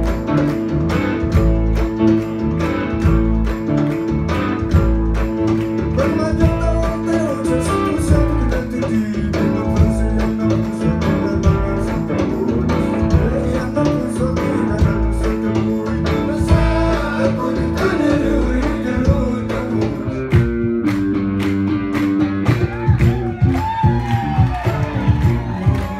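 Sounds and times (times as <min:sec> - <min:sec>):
bass: 0:00.0 - 0:25.9
electric and acoustic guitars: 0:00.0 - 0:25.9
hand drum: 0:00.0 - 0:25.9
voices singing: 0:13.2 - 0:20.2.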